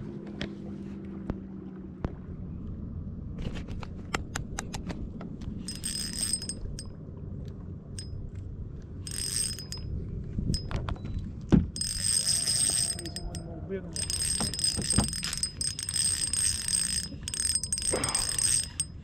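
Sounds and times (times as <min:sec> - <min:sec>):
fishing reel clicking: 0:05.6 - 0:06.9, 0:09.1 - 0:09.9, 0:11.8 - 0:19.0
fishing reel whirring: 0:05.6 - 0:06.9, 0:09.1 - 0:09.9, 0:11.8 - 0:19.0.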